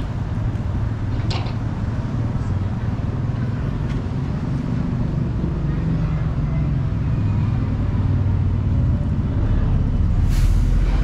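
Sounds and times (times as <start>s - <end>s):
lorry diesel engine rumbling: 0.0s - 11.0s
air brakes hissing: 10.2s - 11.0s.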